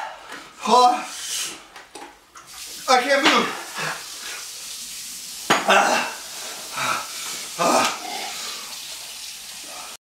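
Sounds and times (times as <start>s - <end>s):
man gasping and groaning: 5.7s - 8.5s.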